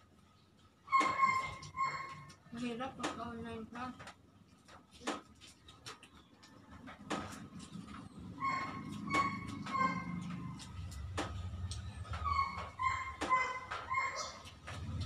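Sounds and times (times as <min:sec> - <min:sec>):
dog whining: 0:00.9 - 0:02.4, 0:08.0 - 0:11.0, 0:11.8 - 0:15.0.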